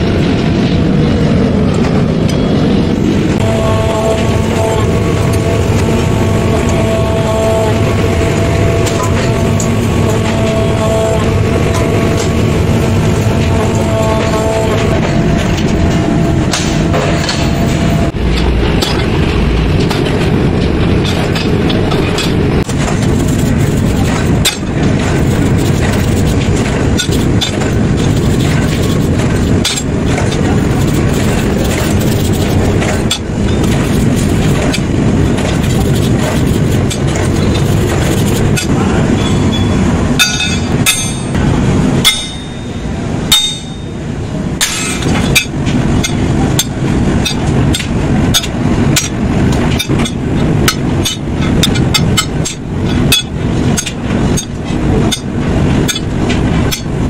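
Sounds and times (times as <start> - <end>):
background rumble: 0.0 - 39.1
hammer striking steel: 14.2 - 22.8, 38.6 - 41.4, 42.0 - 44.0, 44.6 - 56.1.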